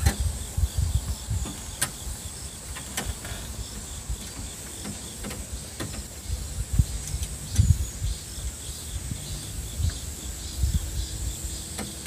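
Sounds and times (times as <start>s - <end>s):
insects trilling: 0.0s - 12.0s.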